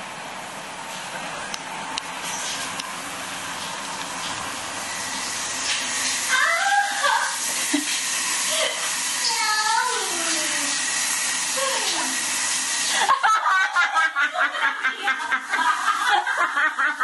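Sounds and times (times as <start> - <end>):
shower spray hissing: 3.5 - 13.3
pulsing laughter: 12.9 - 17.0.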